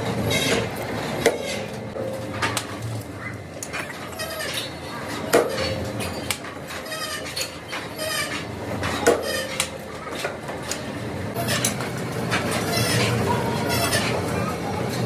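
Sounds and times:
steel disc clanking against metal: 0.2s - 2.9s, 3.6s - 15.0s.

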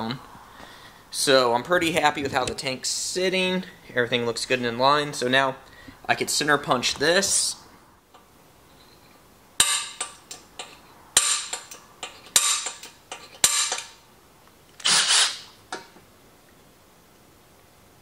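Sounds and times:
center punch metallic clicks: 9.6s - 14.0s
brief rasp: 14.8s - 15.5s.

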